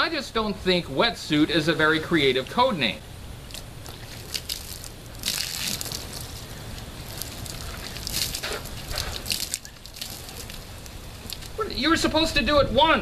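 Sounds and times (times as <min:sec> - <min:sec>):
water pattering and dripping: 0:03.4 - 0:11.6
water splashing onto clothes: 0:03.5 - 0:11.6.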